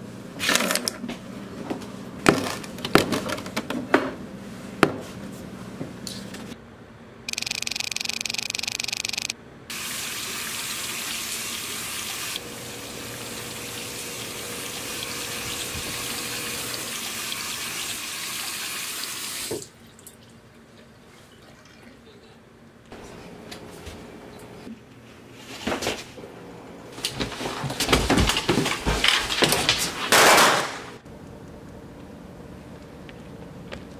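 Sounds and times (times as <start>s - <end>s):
tap water running into sink: 9.7s - 20.2s.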